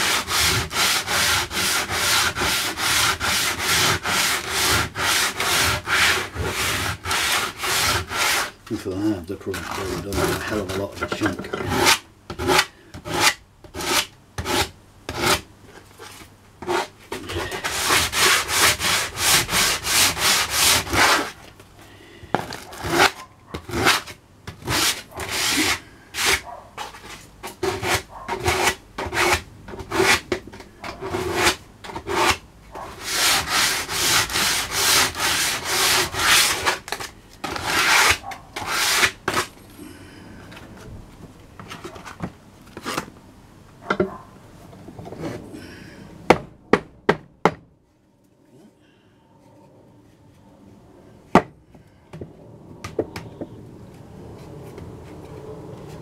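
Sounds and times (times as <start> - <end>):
sandpaper rubbing on rough wood: 0.0 - 11.0, 16.6 - 21.4, 22.5 - 30.2, 33.0 - 39.5.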